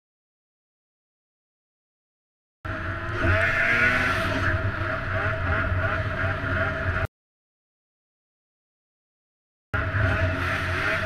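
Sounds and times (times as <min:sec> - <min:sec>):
snowmobile engine running: 0:02.7 - 0:07.1, 0:09.8 - 0:11.0.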